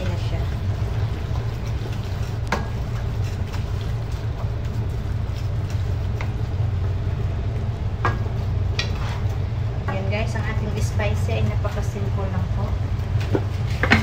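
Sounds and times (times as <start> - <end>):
steady low hum: 0.0 - 14.0
wooden spoon scraping metal pan: 8.8 - 9.4.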